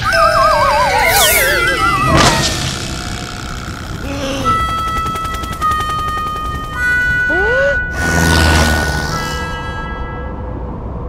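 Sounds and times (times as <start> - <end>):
rising vocal-like glide: 0.0 - 4.8
noisy burst: 0.0 - 5.9.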